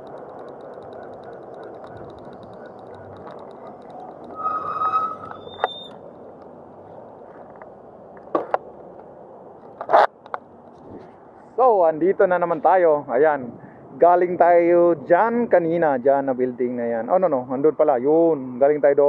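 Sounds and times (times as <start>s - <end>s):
electric dirt bike motor and tyres: 0.0s - 6.0s
sharp clicks: 0.0s - 6.5s
short high squeal: 4.3s - 6.0s.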